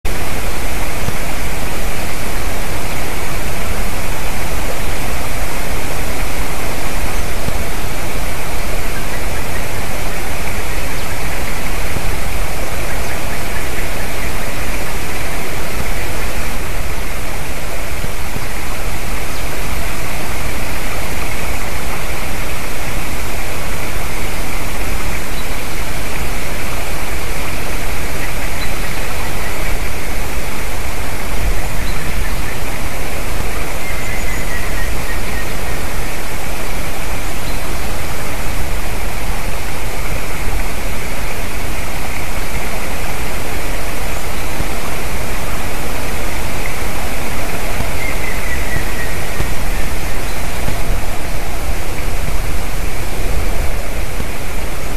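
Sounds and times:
loud steady hiss: 0.1s - 54.9s
distant woodpecker call: 23.9s - 36.2s, 45.2s - 52.5s.

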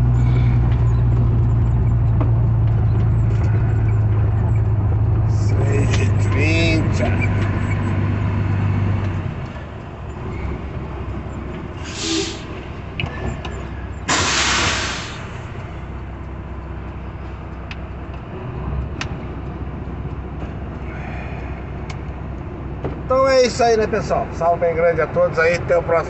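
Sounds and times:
diesel trucks idling: 0.0s - 26.0s
air brake hiss: 11.8s - 12.5s, 14.1s - 15.4s.

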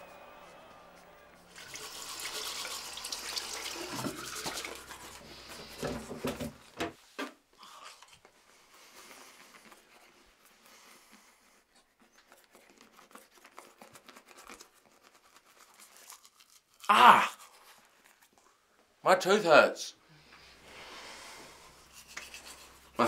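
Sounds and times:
tap running into sink: 3.5s - 4.8s
teeth being brushed: 7.6s - 18.4s, 21.5s - 23.0s.

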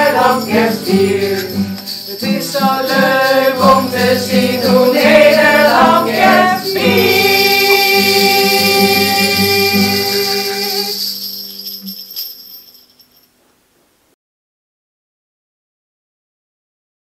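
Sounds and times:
backing music: 0.0s - 11.1s
voices singing held chord: 0.0s - 11.1s
jingling percussion: 0.0s - 13.4s.

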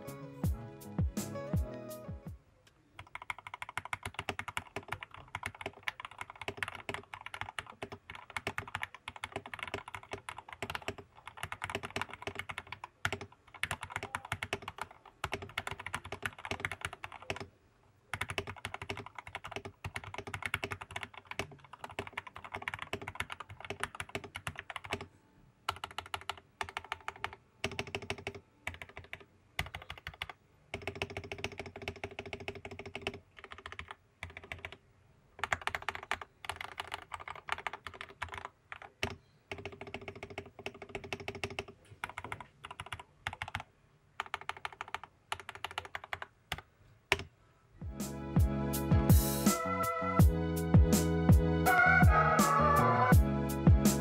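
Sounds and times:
mechanical keyboard typing: 3.0s - 17.5s, 18.1s - 25.1s, 25.7s - 34.8s, 35.4s - 47.3s.

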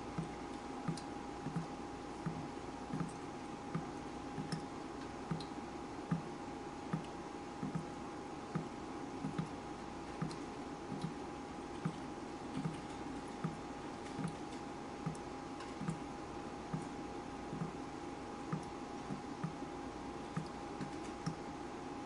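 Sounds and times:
faint steady hum: 0.0s - 22.0s
water dripping: 0.1s - 6.3s.

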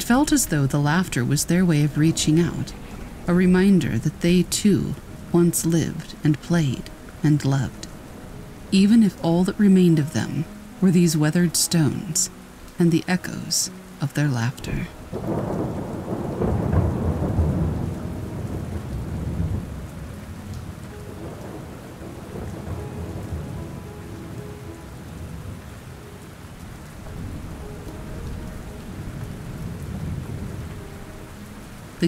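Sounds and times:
thunder rumble: 0.0s - 8.0s, 14.7s - 32.0s
steady rain: 0.0s - 32.0s.

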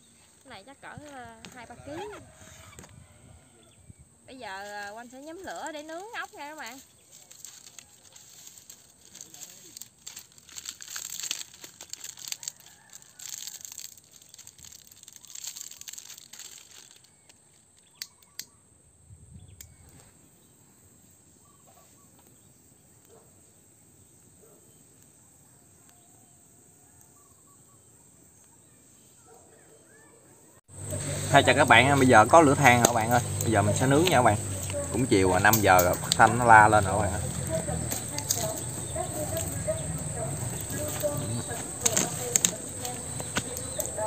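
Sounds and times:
dry twigs rustling and snapping: 4.6s - 18.5s, 30.8s - 44.0s
faint bird chirps: 17.0s - 23.2s, 23.8s - 30.6s.

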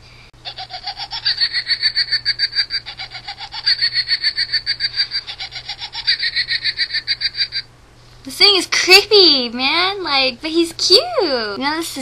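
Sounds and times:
toy electronic laugh: 0.4s - 7.7s.

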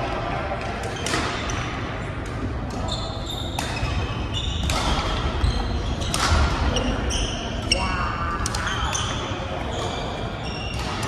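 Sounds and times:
racket striking shuttlecock: 4.6s - 5.2s.

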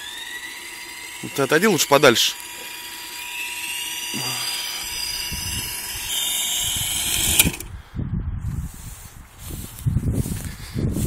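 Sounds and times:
electric helicopter rotor whine: 0.0s - 7.8s
rotor blades striking ground: 0.0s - 7.8s.

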